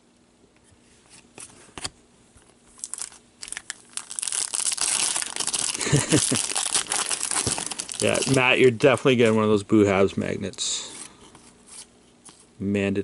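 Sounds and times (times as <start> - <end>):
foil wrapper crinkling and tearing: 2.7 - 8.8.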